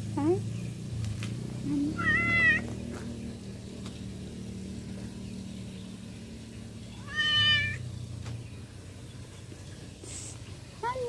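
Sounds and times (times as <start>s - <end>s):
cat meowing: 1.8s - 2.7s, 7.0s - 7.8s.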